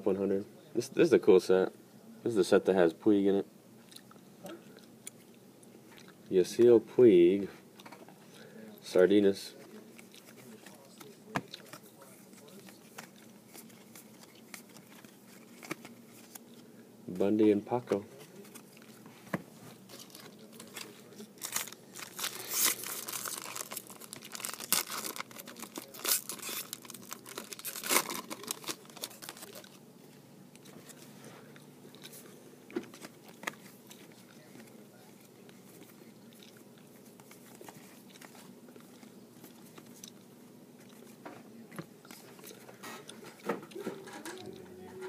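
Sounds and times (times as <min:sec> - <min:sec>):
cards rustling and clicking: 0:09.6 - 0:29.8, 0:32.0 - 0:36.4
foil wrapper crinkling and tearing: 0:19.8 - 0:29.8.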